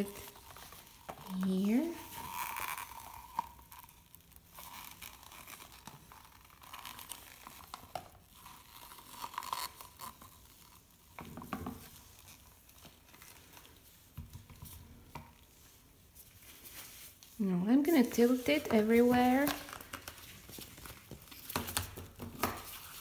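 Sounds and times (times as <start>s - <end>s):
plastic cup crinkling: 0.0s - 15.8s, 16.4s - 23.0s.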